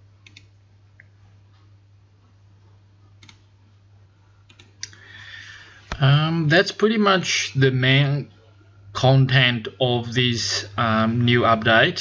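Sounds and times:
low steady hum: 0.0s - 12.0s
computer mouse clicks: 0.2s - 1.1s, 3.2s - 3.5s, 4.5s - 5.0s.

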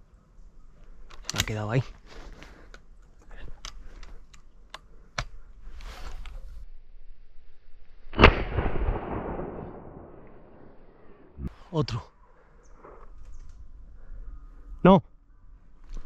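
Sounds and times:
light clicks and rustling: 0.8s - 6.4s
shotgun shot with echo: 8.2s - 10.1s.

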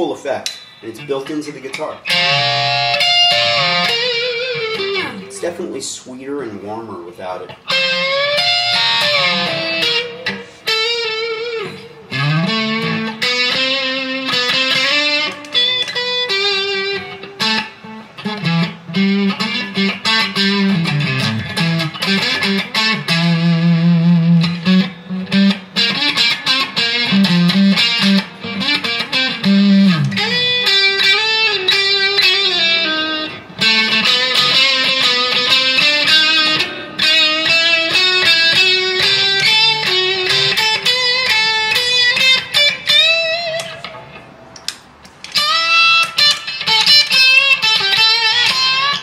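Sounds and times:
electric guitar lead solo: 1.7s - 5.6s, 7.5s - 44.5s, 45.2s - 49.0s.

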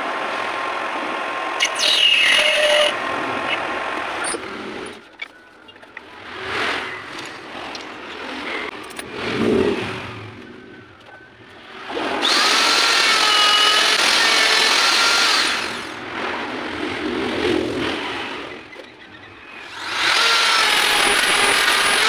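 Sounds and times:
die grinder whining: 1.6s - 5.0s, 11.6s - 16.0s, 19.5s - 22.0s
handling noises: 3.4s - 12.3s.

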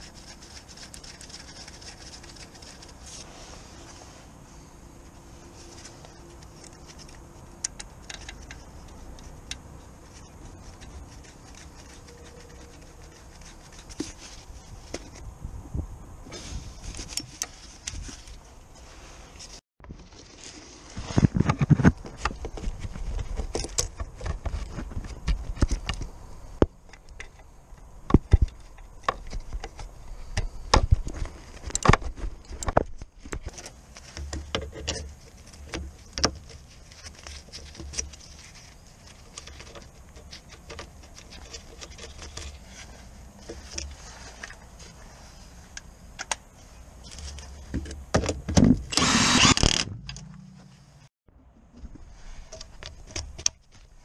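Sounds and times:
power tool running: 48.9s - 49.9s.

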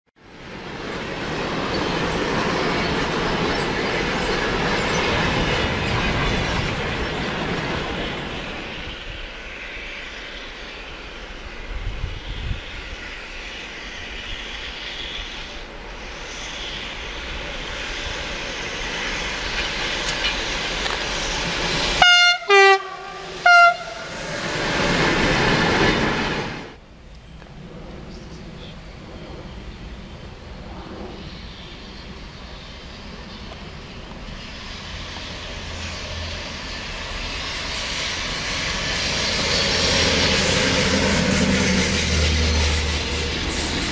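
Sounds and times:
freight train rumbling past: 0.2s - 43.9s
train horn blasts: 22.0s - 24.3s.

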